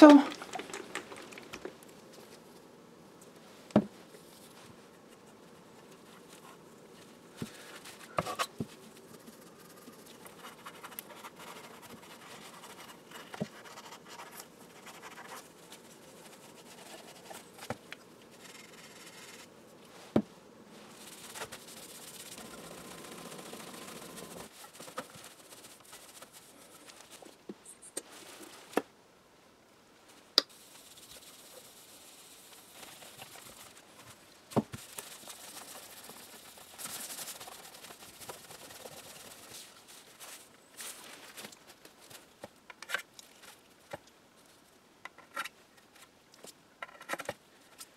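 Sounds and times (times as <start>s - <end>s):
steel wool scrubbing: 30.5s - 34.1s.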